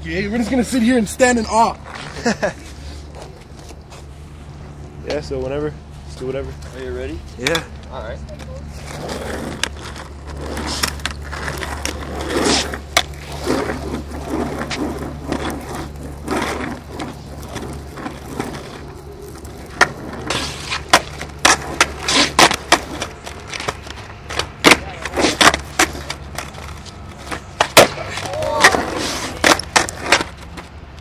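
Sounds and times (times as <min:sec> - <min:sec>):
skateboard wheels rolling on concrete: 0:00.0 - 0:31.0
skateboard deck clacking on ground: 0:08.4 - 0:30.8.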